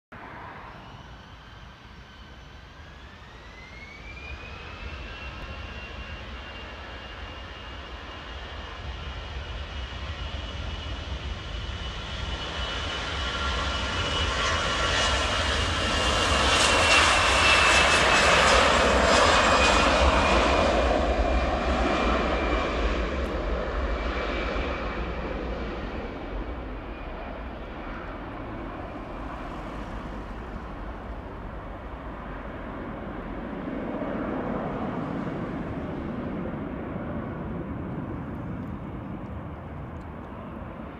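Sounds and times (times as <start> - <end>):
jet engines spooling up: 0.3 - 8.9.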